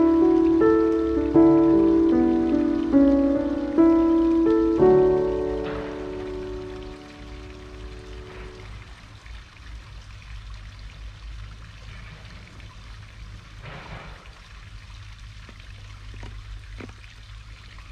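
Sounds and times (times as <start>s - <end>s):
soft music tones: 0.0s - 9.1s
running water trickling: 0.0s - 17.9s.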